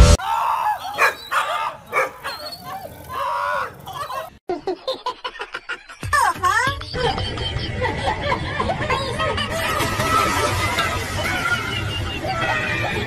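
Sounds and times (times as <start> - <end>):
dog barks: 0.6 - 4.3
dogs whining and yipping: 0.6 - 4.4.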